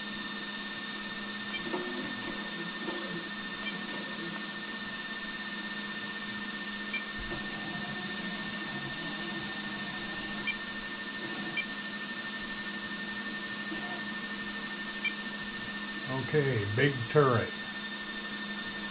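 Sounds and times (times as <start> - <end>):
electric whine and hum: 0.0 - 18.9
small geared motors whirring: 6.9 - 12.8, 13.5 - 15.2.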